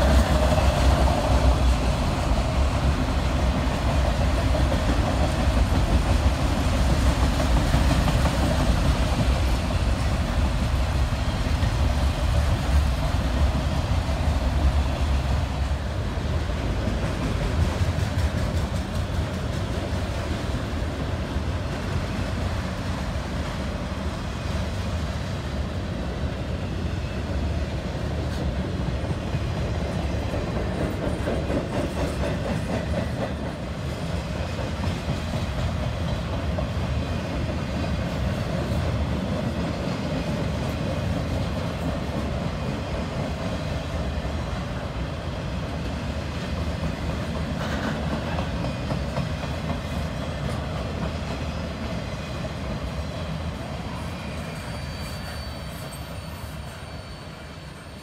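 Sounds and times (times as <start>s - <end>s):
freight train cars rolling past: 0.0s - 58.0s.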